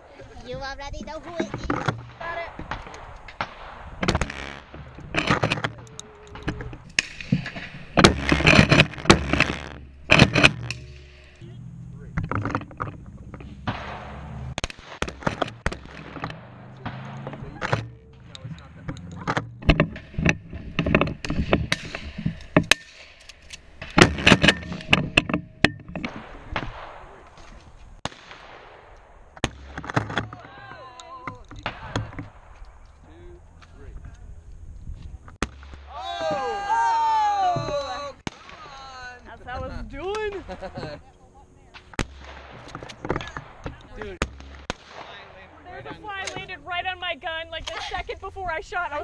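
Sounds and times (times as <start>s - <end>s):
shotgun fire: 2.0s - 5.3s, 13.6s - 17.9s, 26.1s - 27.4s, 28.0s - 30.0s, 38.2s - 38.7s, 41.8s - 45.6s
shotgun handling knocks and rattles: 4.0s - 11.4s, 12.1s - 27.8s, 29.0s - 33.0s, 41.9s - 44.6s.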